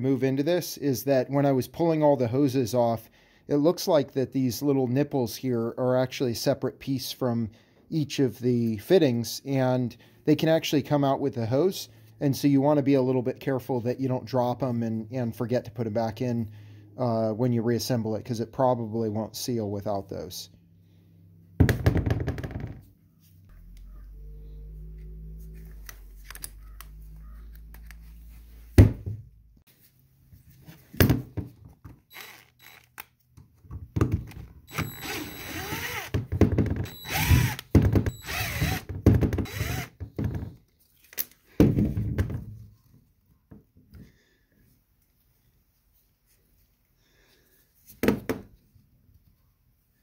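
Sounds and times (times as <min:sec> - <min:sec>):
low steady hum: 0:23.4 - 0:28.7
cordless drill running: 0:32.1 - 0:33.0, 0:34.7 - 0:36.2, 0:36.9 - 0:38.9, 0:39.5 - 0:40.0.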